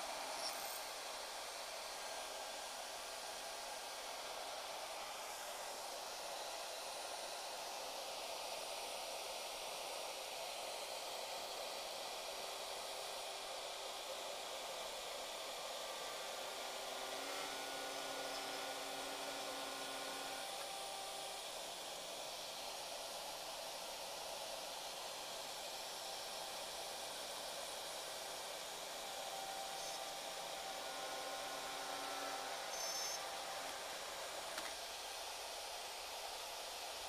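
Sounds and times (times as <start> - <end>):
router cutting wood: 0.0 - 7.8, 12.4 - 37.0.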